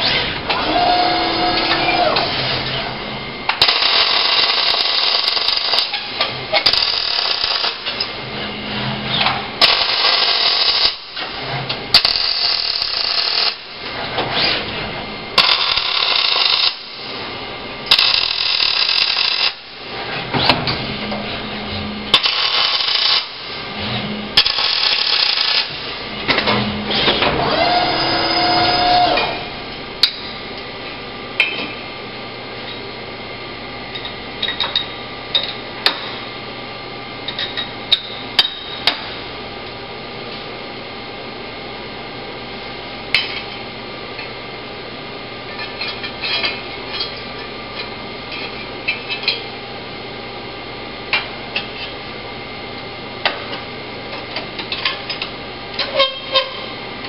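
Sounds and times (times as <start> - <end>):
robot arm motor whine: 0.0 - 2.8, 26.9 - 29.7
welding arc crackling: 3.6 - 5.9, 6.6 - 7.8, 9.6 - 11.1, 12.0 - 13.7, 15.4 - 17.1, 17.9 - 19.8, 22.2 - 23.6, 24.4 - 25.9.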